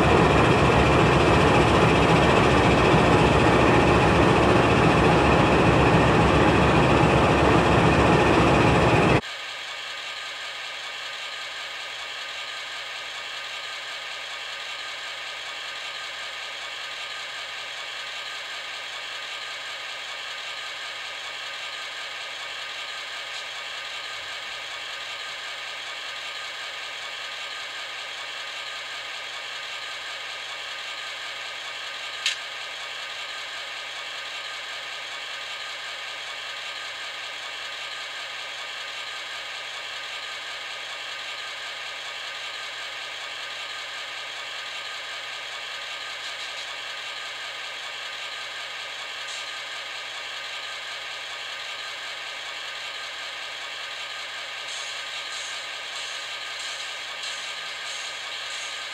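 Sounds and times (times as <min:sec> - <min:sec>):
diesel idle through small speaker: 0:00.0 - 0:58.9
sharp click: 0:32.2 - 0:32.5.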